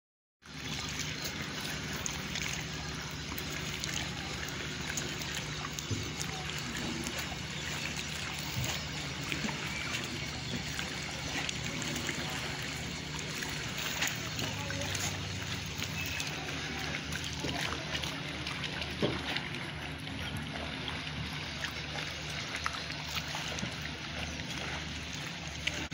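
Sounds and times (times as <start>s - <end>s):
small waves lapping: 0.4s - 25.9s.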